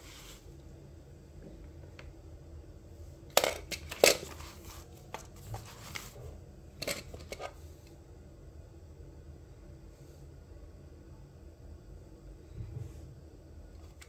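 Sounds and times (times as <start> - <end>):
paper pages rustling: 4.1 - 6.2.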